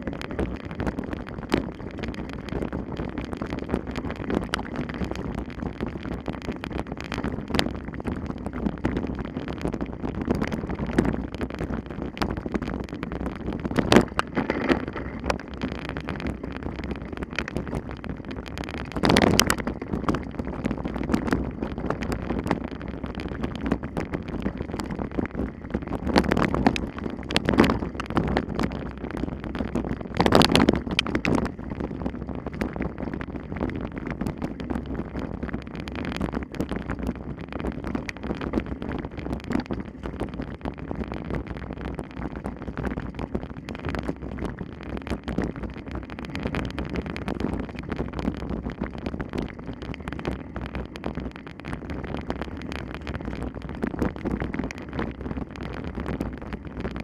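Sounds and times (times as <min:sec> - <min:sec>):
sharp clicks and rattles: 0:00.0 - 0:33.0
wind buffeting microphone: 0:00.0 - 0:57.0.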